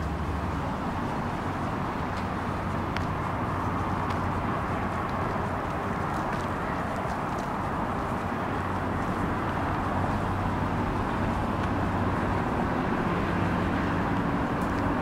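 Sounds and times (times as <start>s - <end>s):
street traffic passing: 0.0s - 15.0s.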